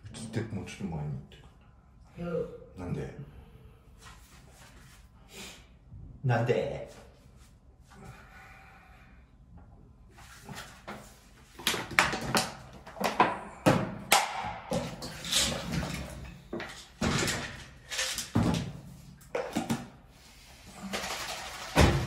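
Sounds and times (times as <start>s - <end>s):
water pouring into shaker: 20.8s - 21.8s.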